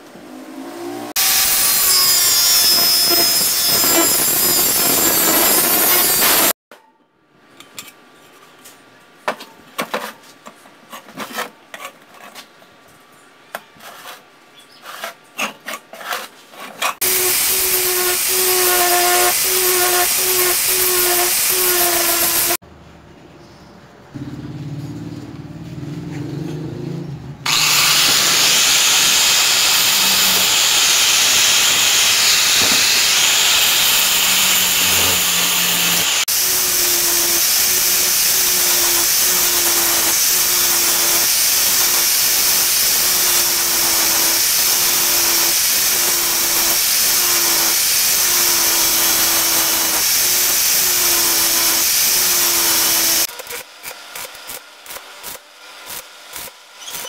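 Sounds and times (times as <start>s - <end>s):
angle grinder grinding steel: 1.1s - 6.6s, 16.8s - 22.6s, 27.5s - 57.0s
arc welding crackle: 27.6s - 36.8s, 37.4s - 57.0s.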